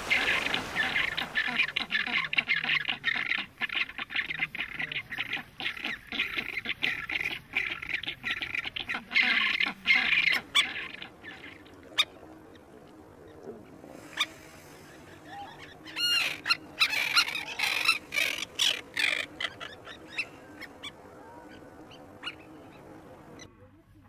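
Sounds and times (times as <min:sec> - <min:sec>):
terns calling harshly: 0:00.0 - 0:02.1.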